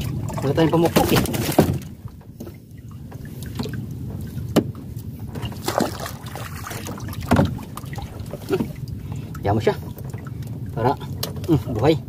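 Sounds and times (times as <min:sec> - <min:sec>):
wind and water rushing: 0:00.0 - 0:12.0.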